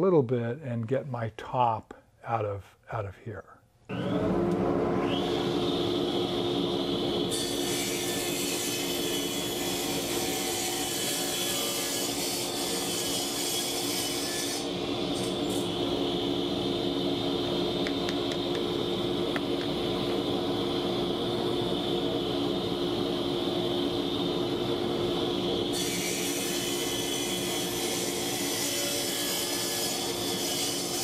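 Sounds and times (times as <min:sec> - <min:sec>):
saw motor humming: 0:03.9 - 0:31.0
saw cutting wood: 0:05.0 - 0:16.4, 0:25.4 - 0:31.0.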